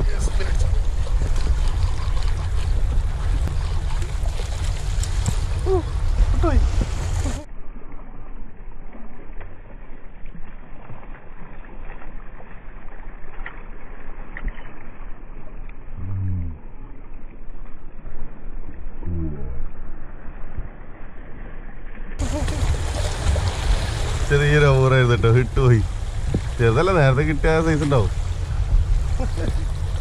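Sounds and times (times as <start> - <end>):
water splashing at rocks: 0.0 - 7.5, 22.2 - 30.0
deep drawn-out tones: 15.8 - 17.1, 22.2 - 30.0.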